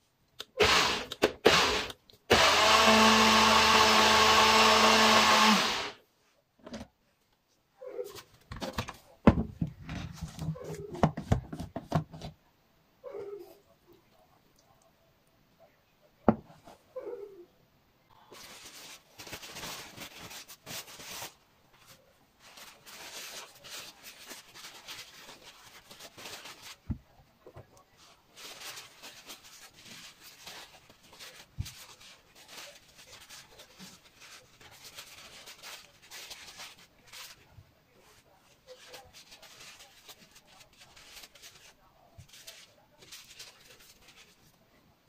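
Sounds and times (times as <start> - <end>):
paper towel rubbing mushrooms: 18.2 - 27.1, 28.0 - 44.6.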